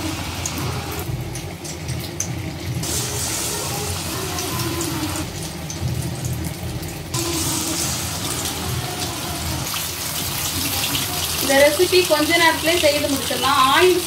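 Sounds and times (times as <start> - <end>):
banana slices sizzling in oil: 0.0 - 14.0.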